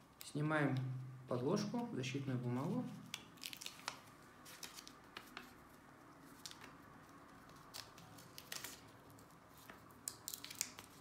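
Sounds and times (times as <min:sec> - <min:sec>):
paper backing peeling crinkles: 0:02.6 - 0:11.0.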